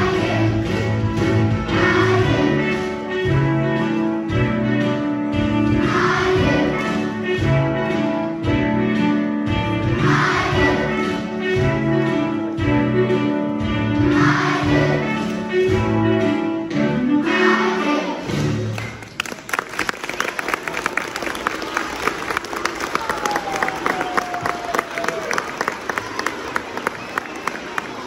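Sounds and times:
children's choir singing: 0.0s - 3.3s, 5.6s - 8.1s, 9.6s - 12.3s, 13.8s - 18.6s.

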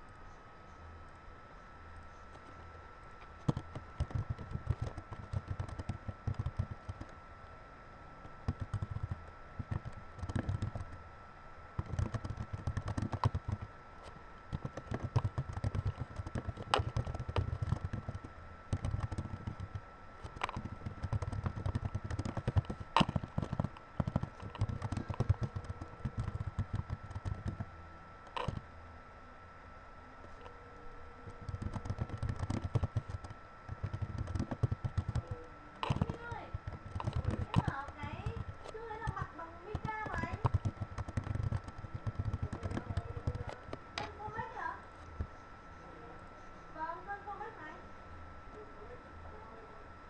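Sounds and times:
typing on keyboard: 3.5s - 7.2s, 8.5s - 11.0s, 11.8s - 13.7s, 14.5s - 27.7s, 31.4s - 44.1s.

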